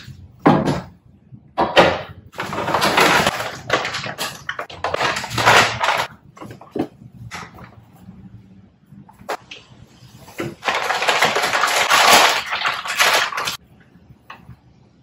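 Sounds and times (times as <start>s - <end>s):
plastic bag crinkling: 2.4s - 6.2s, 10.3s - 13.6s.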